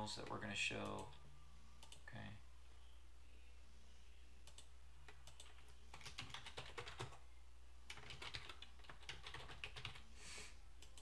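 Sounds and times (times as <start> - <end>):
computer keyboard typing: 4.5 - 7.2, 7.9 - 10.0.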